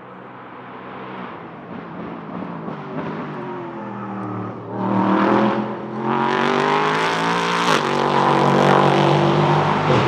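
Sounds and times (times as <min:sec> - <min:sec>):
race car engine accelerating: 0:02.0 - 0:10.0.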